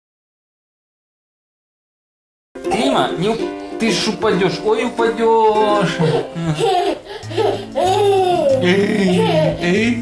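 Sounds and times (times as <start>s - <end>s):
background music: 2.6s - 10.0s.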